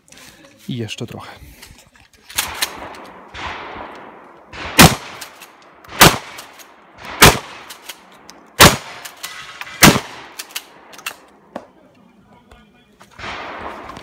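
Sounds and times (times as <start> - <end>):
shotgun shots: 2.4 - 8.0, 8.6 - 10.9, 13.2 - 14.0.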